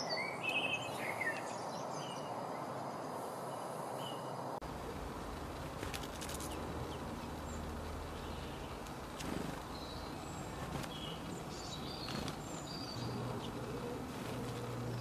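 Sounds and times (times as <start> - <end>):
songbirds chirping: 0.0 - 15.0
low steady hum: 4.6 - 15.0.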